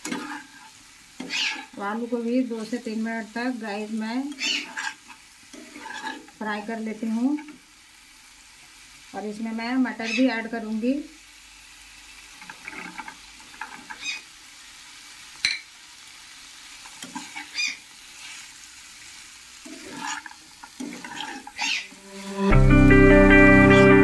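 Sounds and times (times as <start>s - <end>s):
metal spatula scraping pan: 0.0s - 1.7s, 4.3s - 6.4s, 17.0s - 17.5s, 19.6s - 22.5s
low sizzle of frying: 0.0s - 24.0s.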